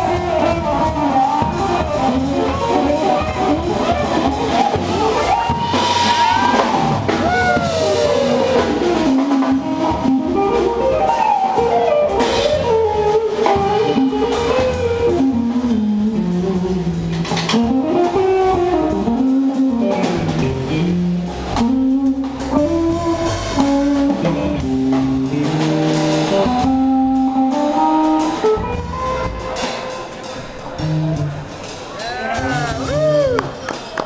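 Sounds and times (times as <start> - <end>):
electric guitar solo: 0.0 - 16.3
upright bass: 0.0 - 33.6
drum kit: 0.0 - 34.0.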